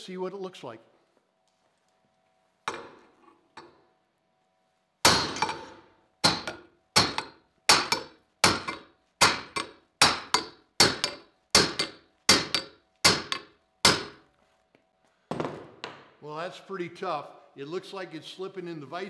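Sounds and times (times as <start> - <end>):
hammer striking steel: 5.0 - 14.2.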